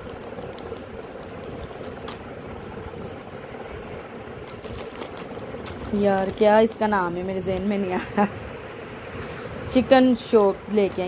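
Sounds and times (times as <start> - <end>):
plastic bag crackling: 0.0 - 2.3, 4.4 - 7.8, 10.1 - 11.0
room hum and hiss: 0.0 - 11.0.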